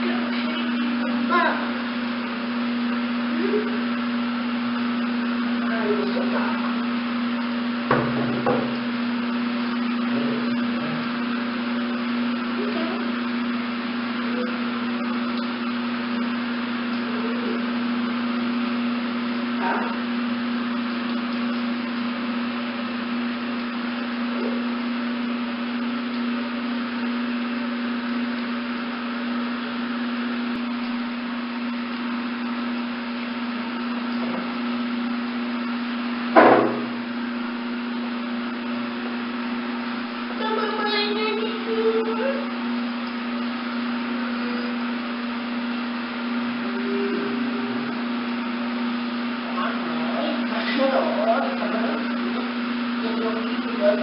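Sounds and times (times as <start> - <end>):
low mechanical hum: 0.0 - 54.0
knocks: 7.9 - 8.8, 36.4 - 36.9.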